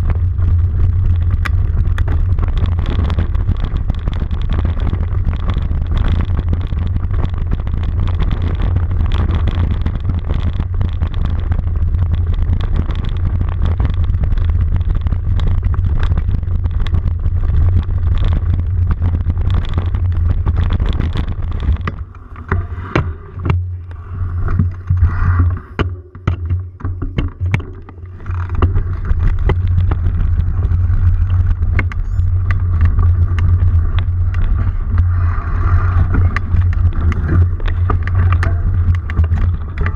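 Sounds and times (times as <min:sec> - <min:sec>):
low rumble of riding trail: 0:00.0 - 0:39.9
knocks and rattles: 0:24.4 - 0:33.6.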